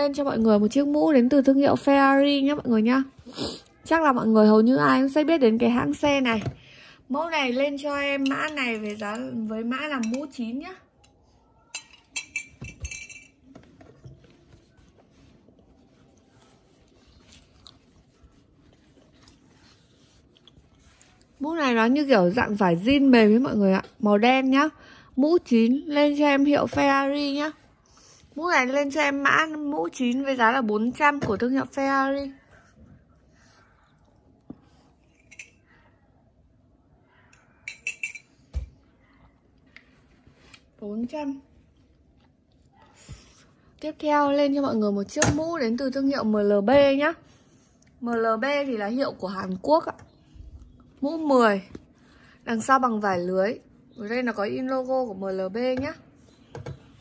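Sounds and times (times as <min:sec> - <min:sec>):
light clicks and clinks: 0:35.1 - 0:35.8.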